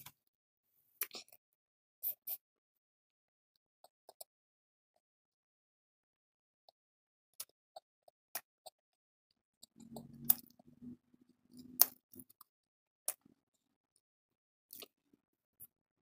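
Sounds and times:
chewing clicks and crunches: 9.6s - 10.7s, 14.7s - 15.0s.

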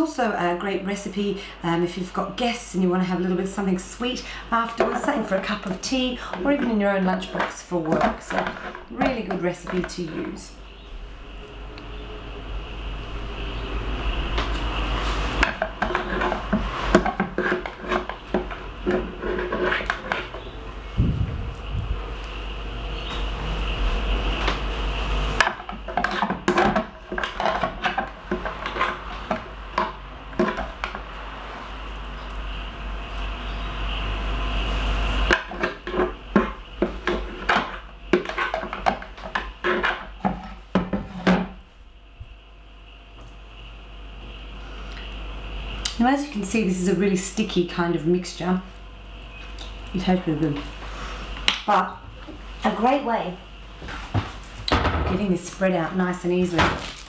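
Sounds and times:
spoon scraping blender jug: 15.8s - 20.5s.

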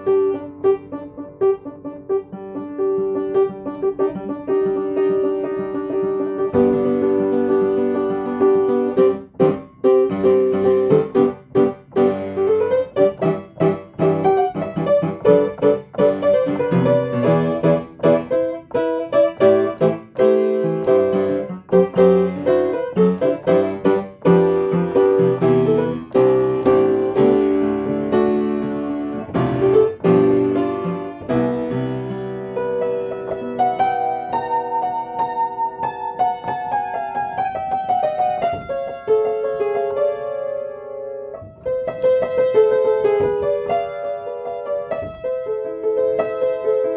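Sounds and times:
solo piano piece: 0.0s - 46.9s.

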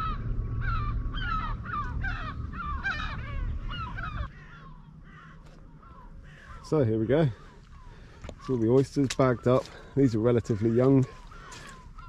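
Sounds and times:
birds calling sharply: 0.0s - 12.0s
low rumble: 0.0s - 12.0s.

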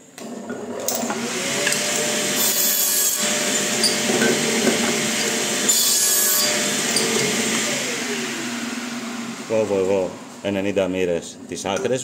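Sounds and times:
saw blade cutting wood: 1.0s - 8.4s
mitre saw motor whine: 1.0s - 11.0s.

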